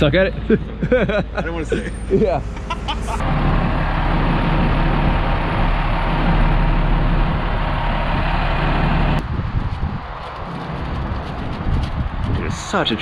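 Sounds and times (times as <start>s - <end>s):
heavy engine idling: 2.4s - 9.2s.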